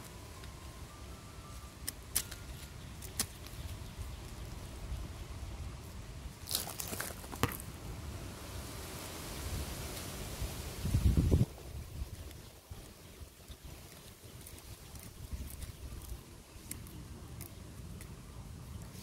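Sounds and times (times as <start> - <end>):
hands rustling through dry leaves: 8.5 - 19.0.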